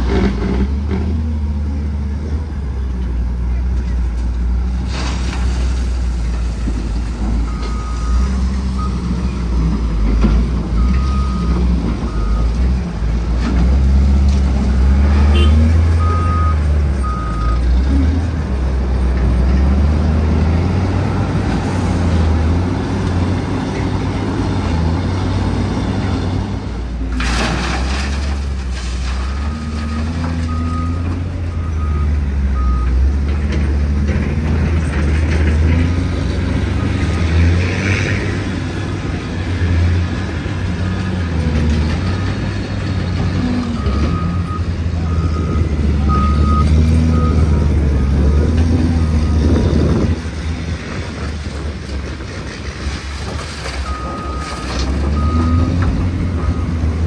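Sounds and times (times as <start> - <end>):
diesel truck engine running: 0.0 - 27.1, 28.3 - 57.0
reversing alarm beeping: 43.7 - 49.5, 53.9 - 56.9.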